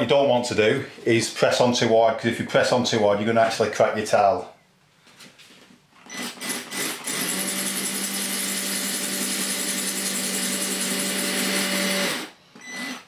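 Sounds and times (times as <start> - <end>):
cordless drill grinding into tile: 6.0 - 13.0.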